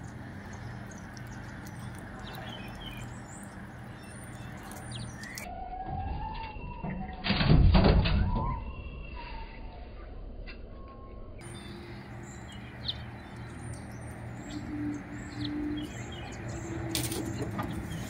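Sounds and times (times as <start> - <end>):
squirrels thumping and scrabbling: 16.8 - 18.0.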